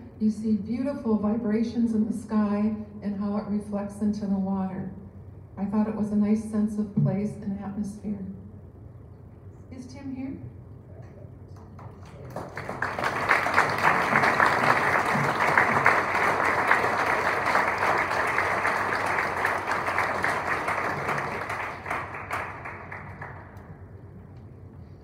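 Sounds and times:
audience applauding: 0:11.6 - 0:24.0.

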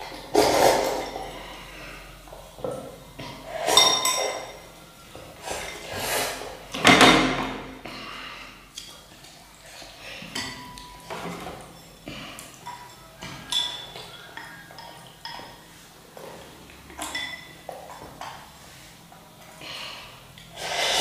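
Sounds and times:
spoon clinking on ceramic bowl: 0:03.7 - 0:04.7, 0:12.6 - 0:15.6, 0:17.0 - 0:17.7.

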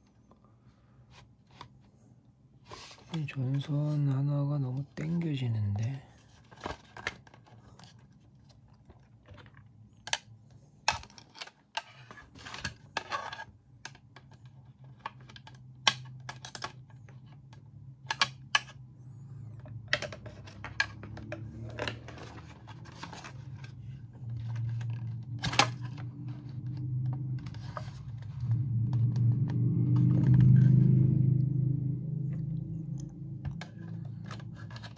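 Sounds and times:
low hum: 0:16.8 - 0:34.9
plastic clicks and scrapes: 0:33.4 - 0:34.9.

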